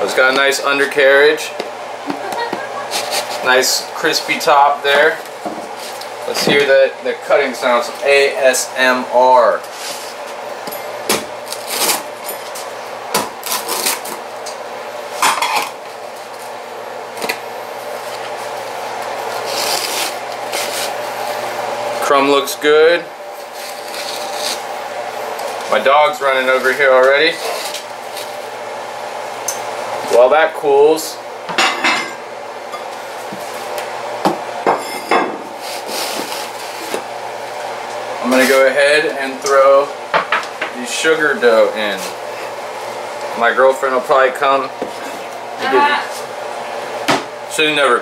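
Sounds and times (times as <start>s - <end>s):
pizza cutter crunching crust: 2.2s - 6.6s, 11.1s - 14.4s, 15.5s - 21.5s, 23.3s - 25.8s, 26.4s - 28.5s, 35.5s - 37.2s.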